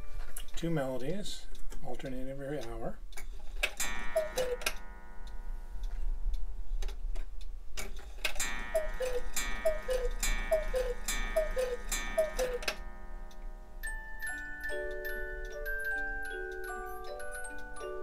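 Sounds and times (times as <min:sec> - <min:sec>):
cuckoo clock calls: 0:03.8 - 0:05.4, 0:08.3 - 0:18.0
clock chime strike: 0:03.8 - 0:05.6, 0:08.4 - 0:16.2
music box tune: 0:03.8 - 0:06.2, 0:08.4 - 0:18.0.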